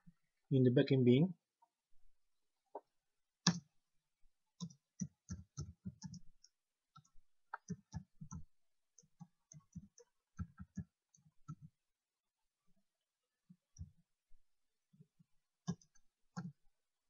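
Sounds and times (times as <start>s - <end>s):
computer keyboard typing: 4.6s - 6.2s.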